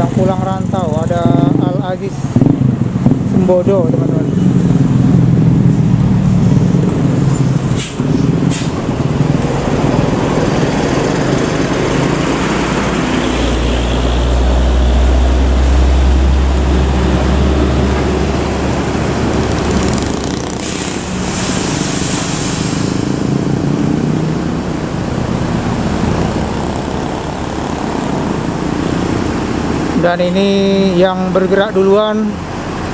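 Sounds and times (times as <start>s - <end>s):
coach diesel engine rumble: 0.0s - 32.9s
road traffic: 0.0s - 32.9s
air hiss: 7.8s - 8.8s, 20.5s - 23.3s.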